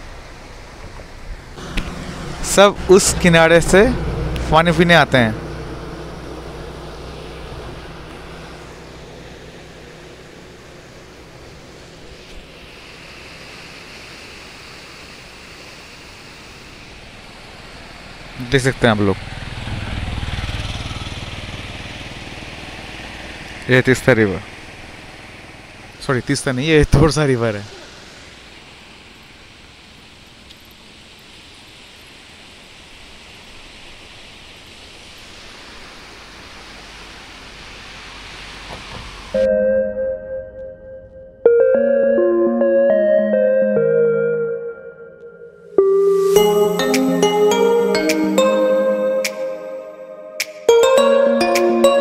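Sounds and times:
wind: 0:00.0 - 0:52.0.

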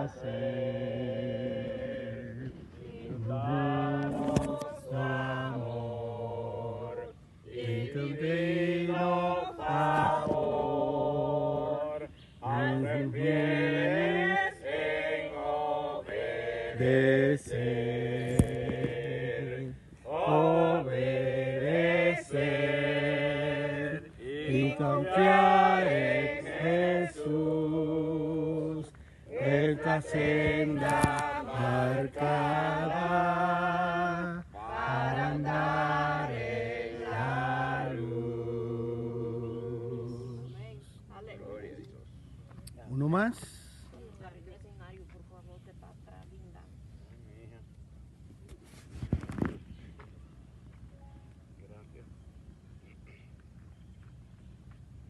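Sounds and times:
group singing a hymn: 0:00.0 - 0:41.1.

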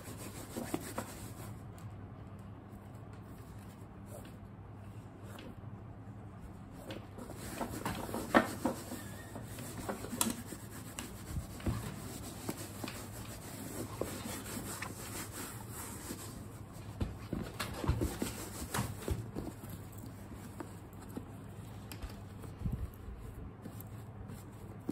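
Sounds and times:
rubbing and rustling of leather bag: 0:00.0 - 0:01.6, 0:07.1 - 0:24.9.

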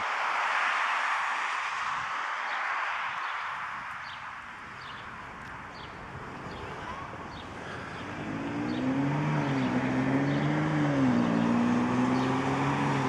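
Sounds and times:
engine droning: 0:05.2 - 0:13.0.

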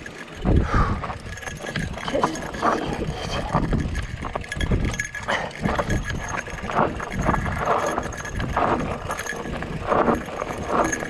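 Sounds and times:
bike rattling over bumps: 0:00.0 - 0:11.0
bike tyres on dirt: 0:00.0 - 0:11.0
wind buffeting microphone: 0:00.3 - 0:11.0.

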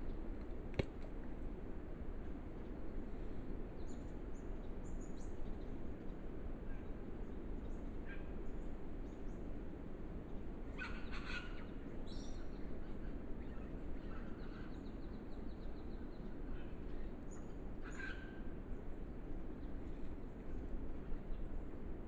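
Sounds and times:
wild birds calling: 0:10.7 - 0:12.4, 0:16.4 - 0:18.6.

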